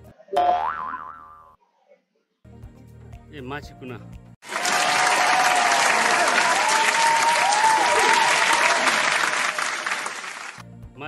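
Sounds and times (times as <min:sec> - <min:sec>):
crowd clapping: 0:04.4 - 0:10.6.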